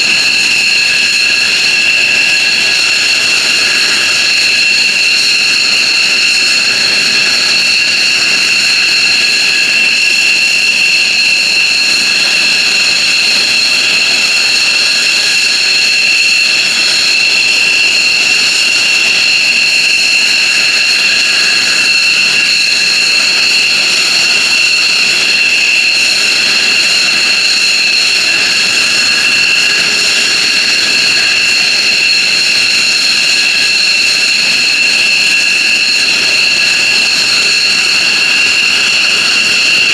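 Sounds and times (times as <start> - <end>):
jet engines whining: 0.0 - 39.9
jet rush: 0.0 - 39.9.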